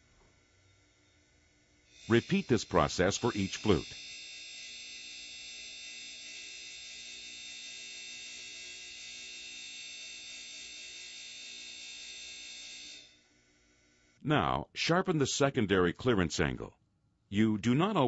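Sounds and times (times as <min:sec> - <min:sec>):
grinder motor whining: 0:01.9 - 0:12.1.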